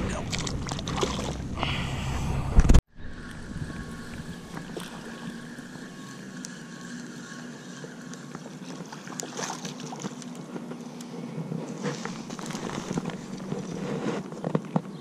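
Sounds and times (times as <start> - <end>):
fish splashing in water: 0.3 - 1.4, 3.4 - 10.4, 11.8 - 13.7
fishing reel whirring: 3.1 - 11.1, 11.7 - 13.8.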